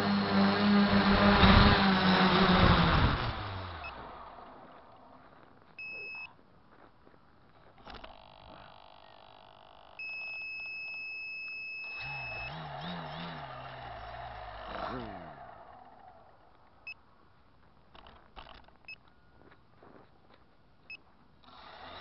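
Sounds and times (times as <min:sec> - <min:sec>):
quadcopter motor noise: 0:00.0 - 0:05.0, 0:07.7 - 0:16.5, 0:21.4 - 0:22.0
electronic buzzer beeping: 0:05.8 - 0:06.3, 0:09.9 - 0:12.6.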